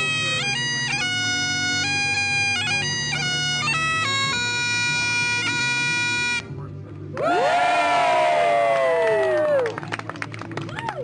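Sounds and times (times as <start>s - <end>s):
bagpipes playing a tune: 0.0s - 6.8s.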